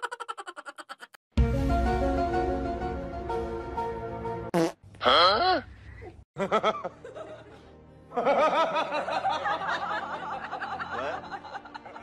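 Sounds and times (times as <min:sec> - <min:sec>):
high-pitched giggling: 0:00.0 - 0:01.2.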